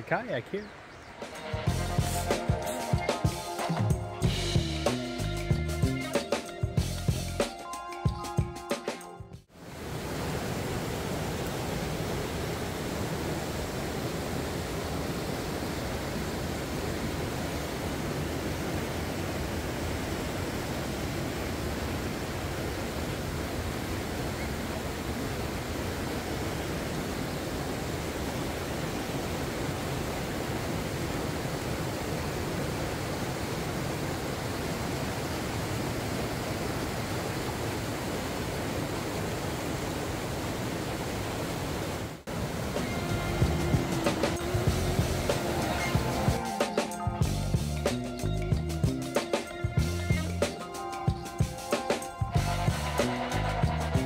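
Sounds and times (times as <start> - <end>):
river rapids roaring: 9.5 - 47.9.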